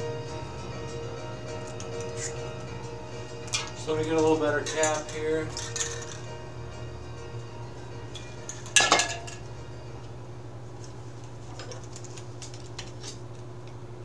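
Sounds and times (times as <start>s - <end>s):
steady low hum: 0.0s - 14.0s
spray cans clattering: 3.5s - 6.3s, 8.5s - 9.4s
cans and caps rattling: 4.6s - 6.3s, 8.4s - 9.4s.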